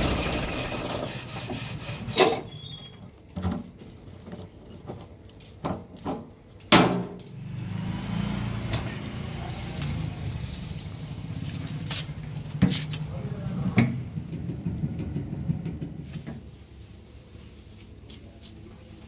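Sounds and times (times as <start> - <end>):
fuel pump motor humming: 0.0 - 1.2.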